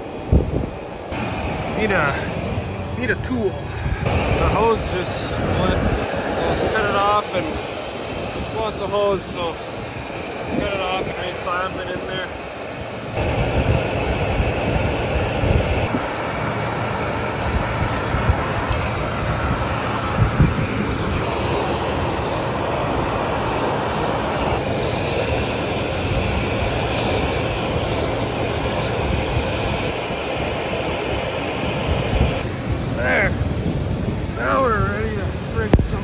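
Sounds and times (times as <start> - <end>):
tractor and air drill droning: 0.0 - 33.7.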